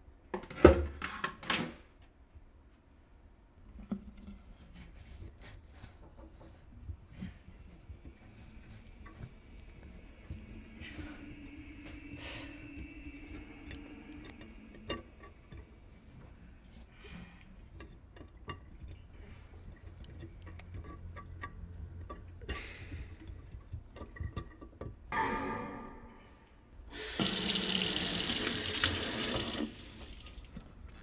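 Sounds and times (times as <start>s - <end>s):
low steady hum: 2.2s - 31.0s
small clicks and knocks in sink drain: 5.7s - 25.1s.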